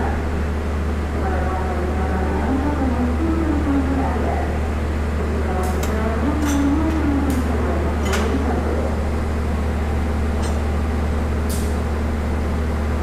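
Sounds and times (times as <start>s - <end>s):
diesel locomotive engine idling: 0.0s - 13.0s.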